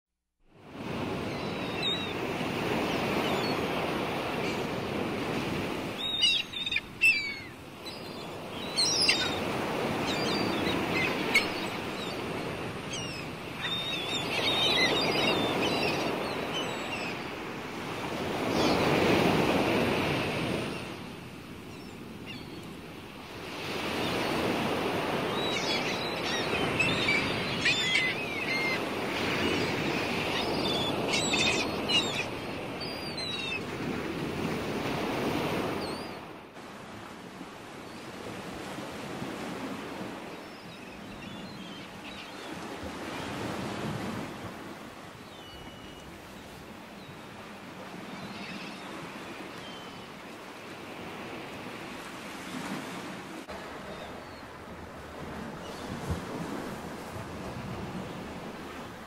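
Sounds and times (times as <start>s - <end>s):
small birds chirping: 5.9s - 17.3s, 25.2s - 33.6s.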